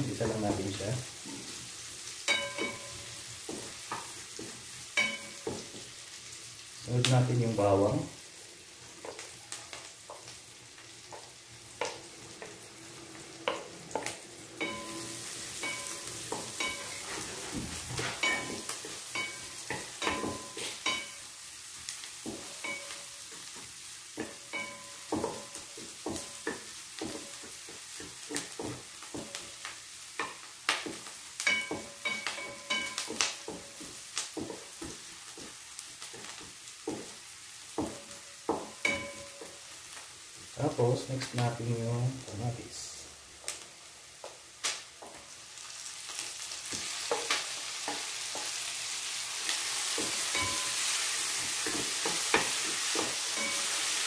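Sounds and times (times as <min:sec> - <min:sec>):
garlic and onion sizzling in pan: 0:00.0 - 0:54.0
wooden spatula scraping pan: 0:16.3 - 0:19.0.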